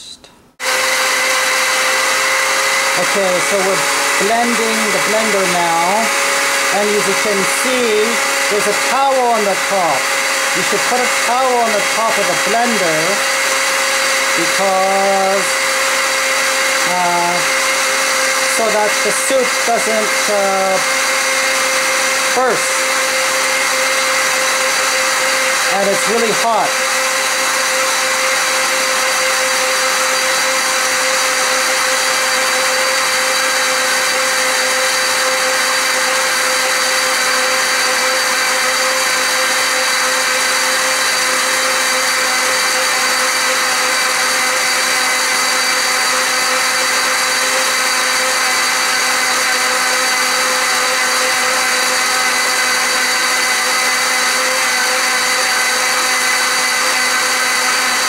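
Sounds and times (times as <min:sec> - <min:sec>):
blender running: 0:00.0 - 0:58.0.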